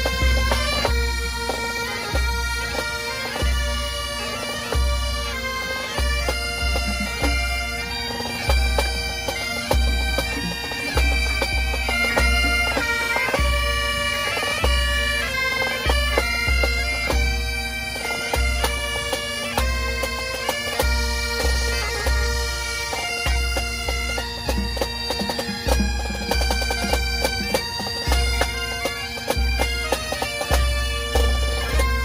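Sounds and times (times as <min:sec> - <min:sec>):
bagpipes playing a tune: 0:00.0 - 0:32.0.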